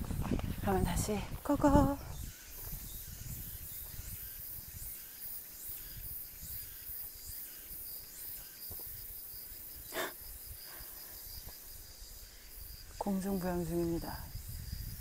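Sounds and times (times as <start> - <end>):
footsteps on a trail: 0.0 - 5.6, 6.3 - 9.4, 11.2 - 11.8
insects chirping: 0.0 - 15.0.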